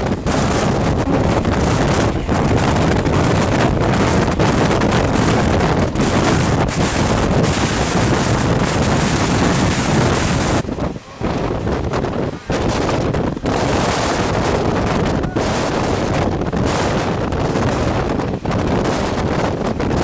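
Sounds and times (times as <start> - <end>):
electric train passing: 0.0 - 18.4
rush of wind: 0.0 - 20.0
wheel-on-rail noise: 0.0 - 20.0
wind buffeting microphone: 0.0 - 20.0.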